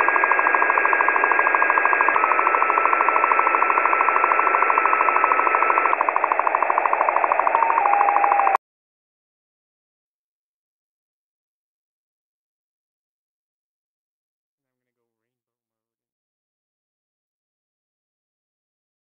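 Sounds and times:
pulsing electronic hiss: 0:00.0 - 0:08.6.

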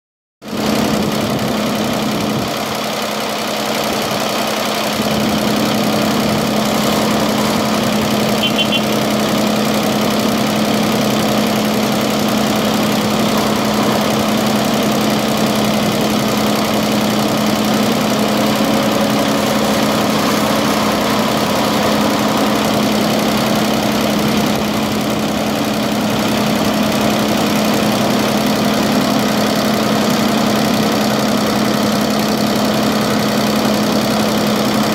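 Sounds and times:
loader diesel engine running: 0:00.4 - 0:34.9
tractor diesel engine: 0:00.4 - 0:34.9.

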